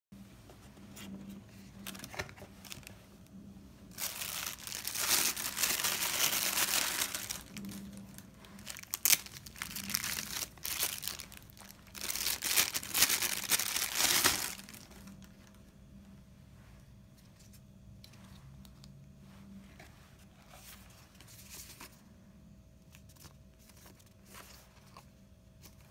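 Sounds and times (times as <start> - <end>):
plastic bag crinkling: 1.8 - 2.9, 3.9 - 15.6.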